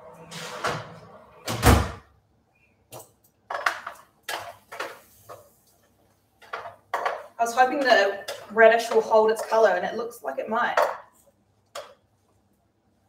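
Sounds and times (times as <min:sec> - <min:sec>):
oven door closing thud: 0:00.3 - 0:02.0.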